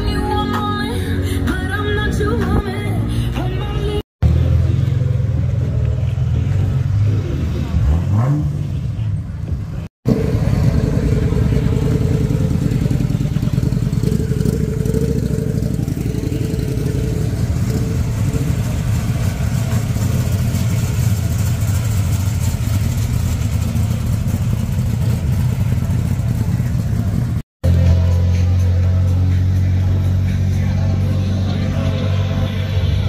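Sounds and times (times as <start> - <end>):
car driving away: 4.2 - 33.0
motorcycle riding off: 10.1 - 33.0.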